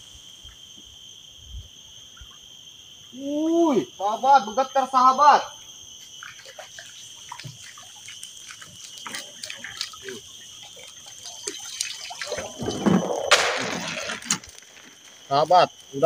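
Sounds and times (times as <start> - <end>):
water splashing and dripping: 6.0 - 15.9
water rushing and splashing: 6.2 - 15.7.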